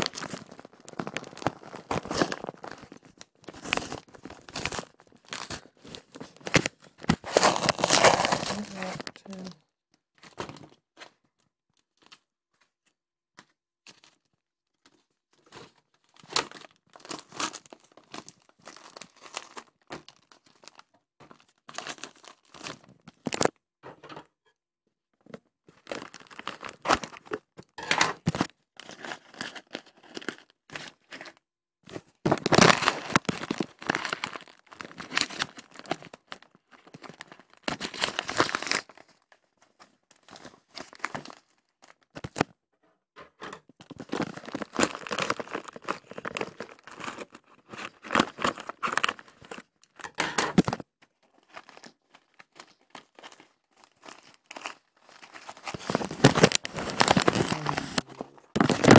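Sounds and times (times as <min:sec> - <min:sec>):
packaging tearing and crinkling: 0:00.0 - 0:09.5, 0:15.4 - 0:23.5, 0:25.8 - 0:31.1, 0:32.3 - 0:39.2, 0:40.2 - 0:42.5, 0:43.8 - 0:58.9.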